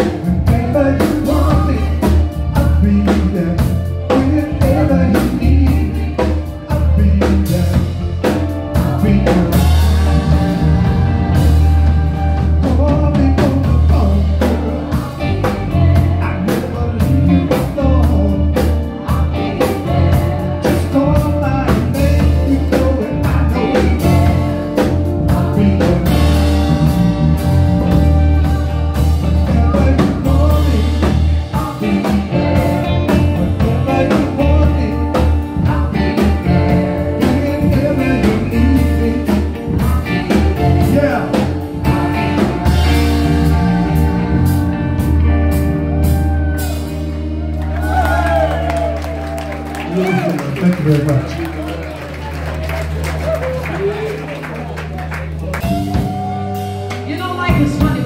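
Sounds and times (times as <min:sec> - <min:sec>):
drum kit beat: 0:00.0 - 0:51.8, 0:52.6 - 0:58.0
bass guitar: 0:00.0 - 0:58.0
electric guitar: 0:00.0 - 0:58.0
woman singing: 0:13.3 - 0:26.5.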